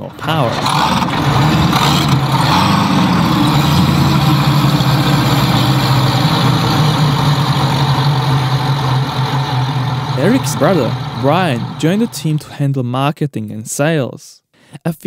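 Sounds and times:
outboard engines running: 0:00.0 - 0:12.4.

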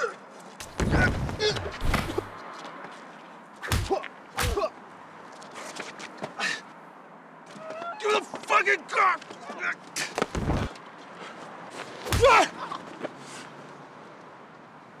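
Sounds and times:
punch and body hit impacts: 0:00.6 - 0:02.3, 0:03.6 - 0:04.7, 0:10.1 - 0:10.8, 0:12.0 - 0:12.5.

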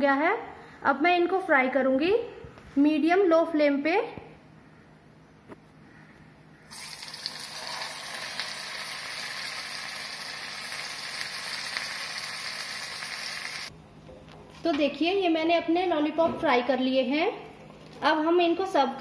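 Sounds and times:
food deep-frying in hot oil: 0:06.7 - 0:13.7.

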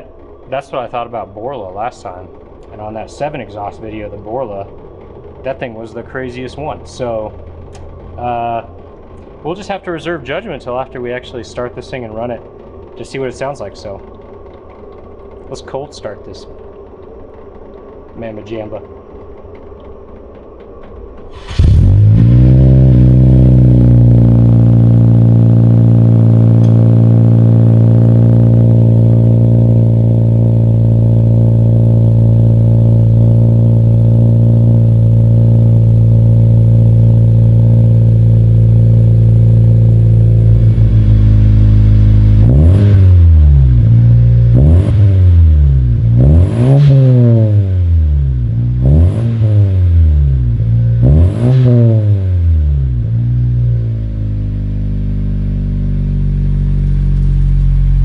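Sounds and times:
car engine revving: 0:00.0 - 0:19.6, 0:20.4 - 0:58.0
car engine idling: 0:00.0 - 0:58.0.

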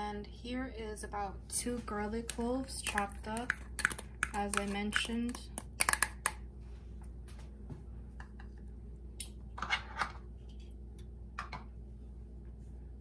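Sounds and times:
steady low hum: 0:00.0 - 0:13.0
butter and garlic crackling: 0:02.0 - 0:06.4.

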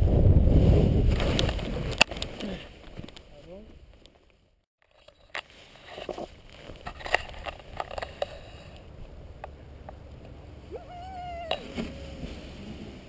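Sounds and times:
wind rumble on microphone: 0:00.0 - 0:02.1.

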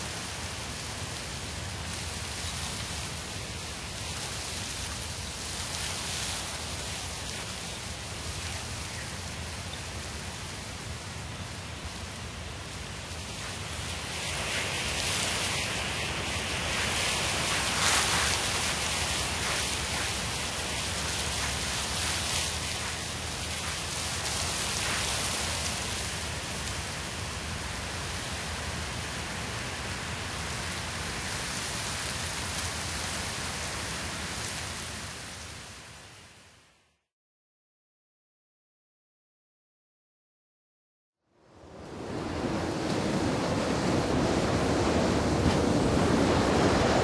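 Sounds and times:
steady rain falling: 0:00.0 - 0:36.6.

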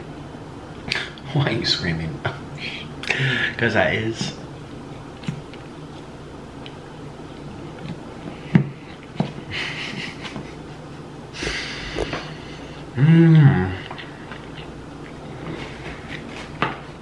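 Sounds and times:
chewing fries: 0:04.6 - 0:09.2, 0:13.7 - 0:16.6.

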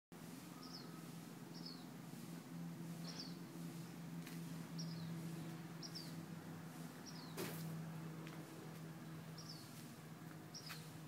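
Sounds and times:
small bird chirping: 0:00.6 - 0:01.9, 0:03.0 - 0:03.4, 0:04.8 - 0:05.2, 0:05.8 - 0:06.2, 0:07.0 - 0:07.4, 0:09.3 - 0:09.8, 0:10.5 - 0:10.9.

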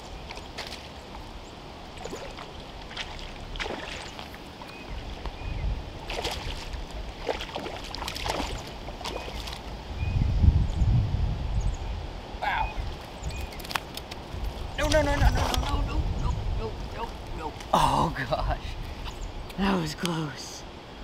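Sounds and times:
fish splashing in water: 0:02.0 - 0:04.7, 0:06.0 - 0:09.7
wind on microphone: 0:02.2 - 0:17.8.

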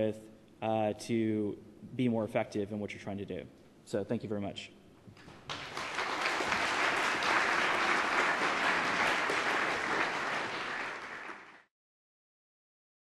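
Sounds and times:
audience applauding: 0:05.3 - 0:11.7.

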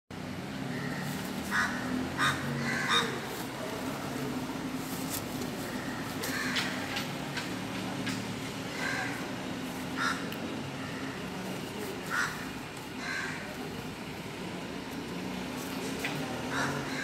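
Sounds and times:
crows cawing: 0:00.7 - 0:03.3, 0:05.6 - 0:07.0, 0:08.7 - 0:09.4, 0:10.0 - 0:11.3, 0:12.0 - 0:13.6, 0:16.5 - 0:17.0.

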